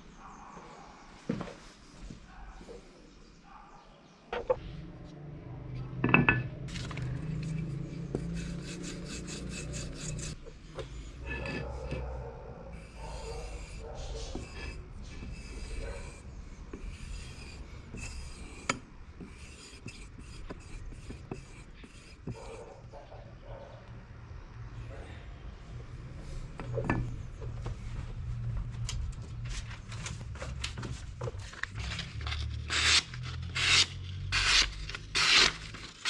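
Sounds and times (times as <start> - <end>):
knife blade scraping wood: 6.7 - 12.1, 12.8 - 22.8, 31.8 - 36.0.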